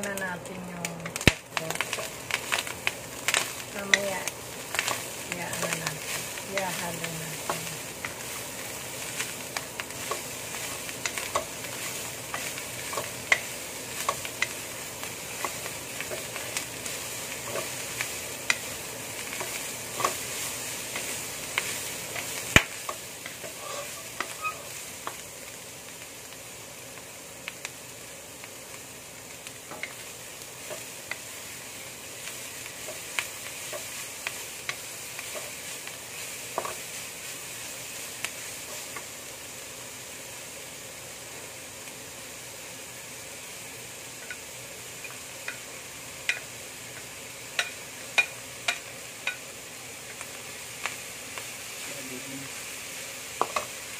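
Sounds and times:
vegetables sizzling in a wok: 0:00.0 - 0:53.9
wooden spatula scraping a pan: 0:23.3 - 0:24.8.

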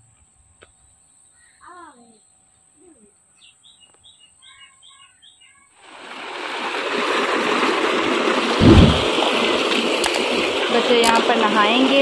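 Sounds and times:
small bird chirping: 0:00.7 - 0:05.7
water pouring into a concrete tank: 0:05.8 - 0:12.0.

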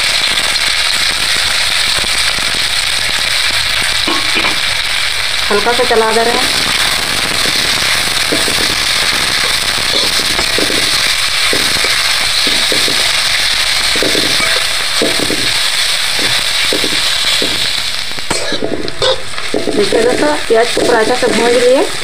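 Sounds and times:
onions sizzling in hot oil: 0:00.0 - 0:22.0
metal spatula scraping pan: 0:14.2 - 0:15.1.

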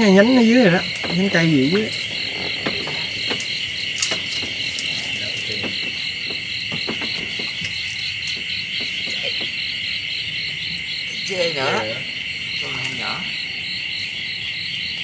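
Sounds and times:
fast-pulsing insect chirp: 0:00.0 - 0:15.0
insects droning shrilly: 0:00.0 - 0:15.0
light clicks and knocks: 0:00.9 - 0:09.6.

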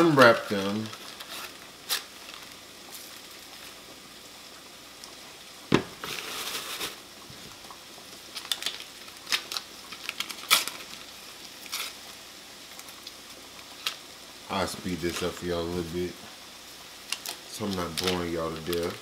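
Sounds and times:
paper wrappers crinkling: 0:00.0 - 0:03.8, 0:06.0 - 0:07.0, 0:08.3 - 0:12.1, 0:14.6 - 0:15.4, 0:17.1 - 0:19.0
butter thump on cutting board: 0:05.7 - 0:06.1.

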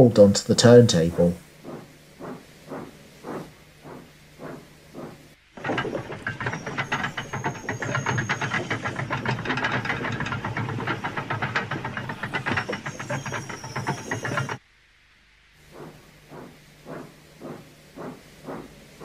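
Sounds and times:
turntable rattling clicks and clanks: 0:02.7 - 0:14.6
high metallic squeal: 0:05.6 - 0:14.6.

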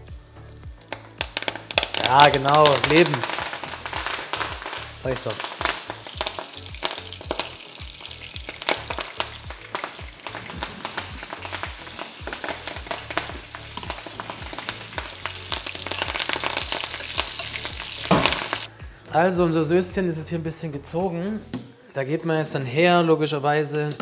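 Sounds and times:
leaves crackling in hot oil: 0:00.8 - 0:18.7.

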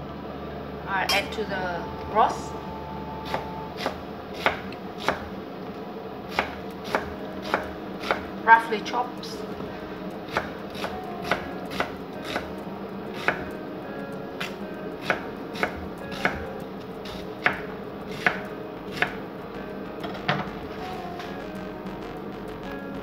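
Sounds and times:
knife chopping on wooden board: 0:10.3 - 0:12.5, 0:17.0 - 0:19.2.

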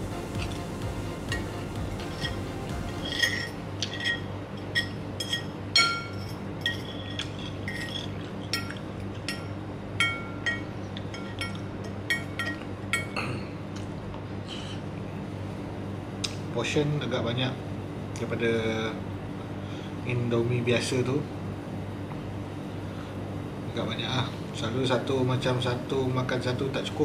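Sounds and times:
cutlery clinking against bowl: 0:03.0 - 0:13.2.

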